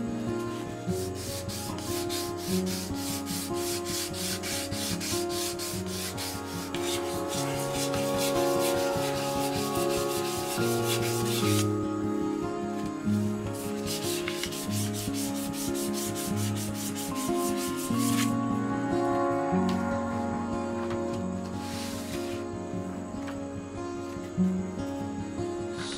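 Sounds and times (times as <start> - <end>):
soft music: 0.0 - 25.9
sandpaper rasping on knife: 1.0 - 11.7, 13.6 - 18.4, 21.7 - 22.4.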